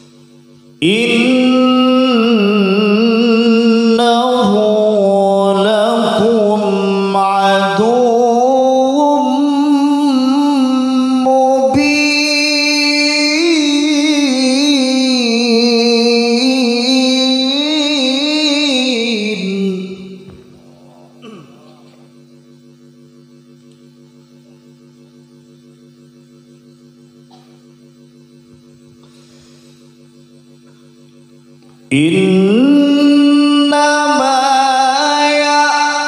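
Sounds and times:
man chanting melodically into microphone: 0.8s - 21.8s, 31.9s - 36.0s.

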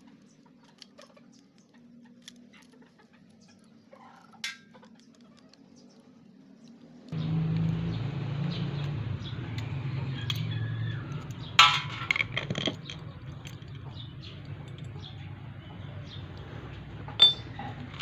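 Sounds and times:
lock parts clinking on metal: 11.2s - 14.0s, 17.2s - 18.0s.

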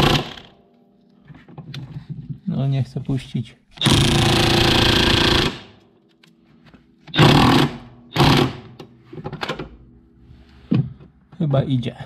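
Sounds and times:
impact wrench hammering: 3.8s - 5.8s, 7.1s - 8.8s.

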